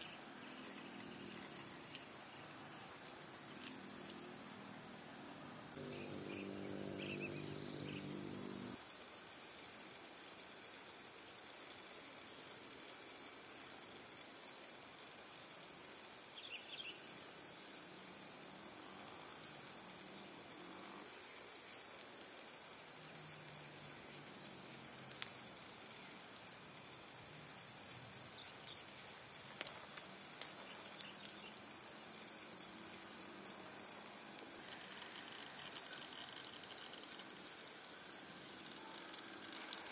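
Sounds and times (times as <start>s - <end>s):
insects chirping: 0.0s - 39.9s
pine needles crackling in fire: 0.1s - 4.6s, 25.0s - 25.4s, 29.4s - 31.7s, 34.3s - 39.9s
low hum: 5.8s - 8.8s.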